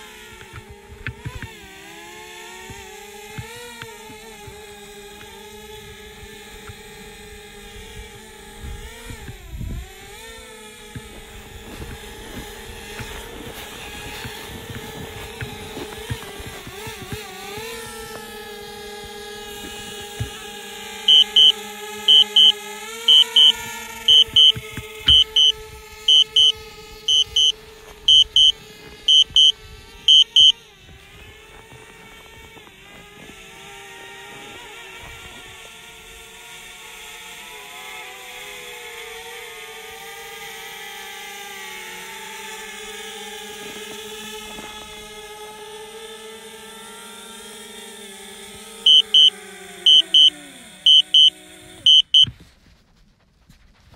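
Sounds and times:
drone propellers whining: 0.4s - 33.9s, 47.4s - 52.3s
double electronic alert beeps: 21.1s - 27.5s, 28.1s - 28.5s, 29.1s - 29.5s, 30.1s - 30.5s, 48.9s - 49.3s, 49.9s - 50.3s, 50.9s - 51.3s, 51.9s - 52.3s.

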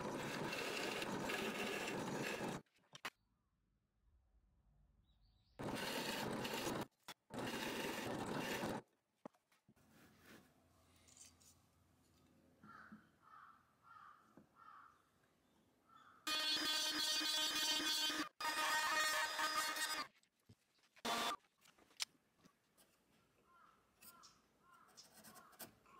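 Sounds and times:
drill press boring into wood: 0.0s - 2.6s, 5.6s - 8.8s, 21.1s - 21.4s
router whining: 0.0s - 2.6s, 5.6s - 8.8s, 21.0s - 21.4s.

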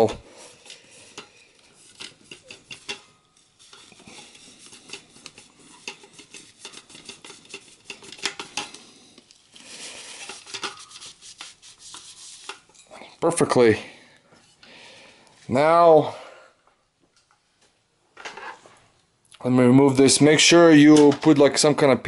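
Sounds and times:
rag rubbing on metal: 0.0s - 12.8s.

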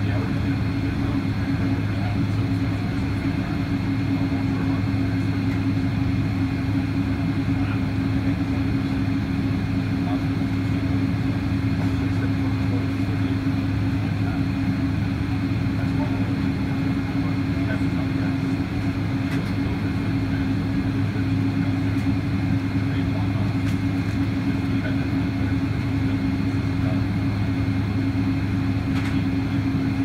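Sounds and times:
airplane cabin engine drone: 0.0s - 30.0s.

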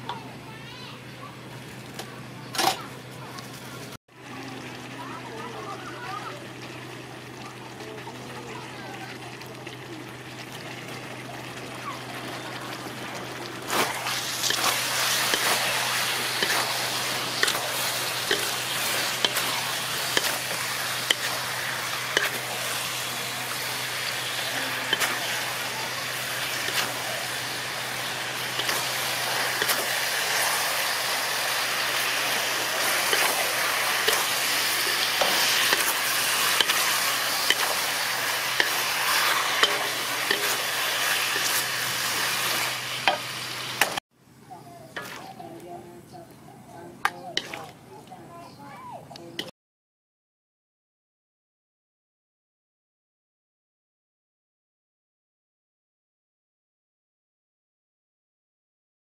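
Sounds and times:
food sizzling in a wok: 4.1s - 44.0s, 45.0s - 45.4s, 47.3s - 47.8s
spatula scraping pan: 13.2s - 44.0s, 45.0s - 45.4s, 47.1s - 47.8s.

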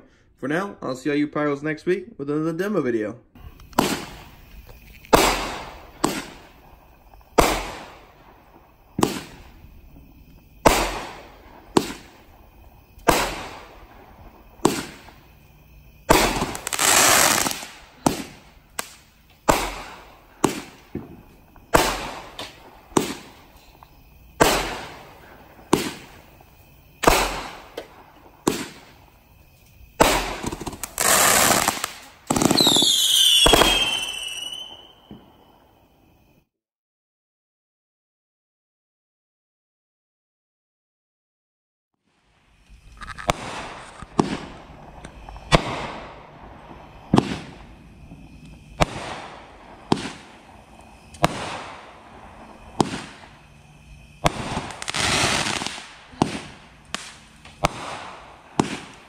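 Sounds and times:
fireworks launch and break reports: 3.4s - 29.2s, 29.9s - 35.1s, 43.0s - 50.5s, 51.1s - 53.4s, 54.2s - 59.0s
fireworks crackling: 3.4s - 35.7s, 42.3s - 59.0s
fireworks whistles falling in pitch: 3.4s - 36.5s, 43.0s - 59.0s.

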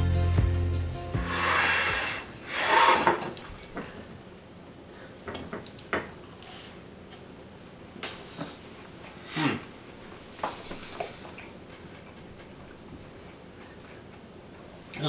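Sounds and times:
plates scraping on countertop: 1.4s - 3.4s.

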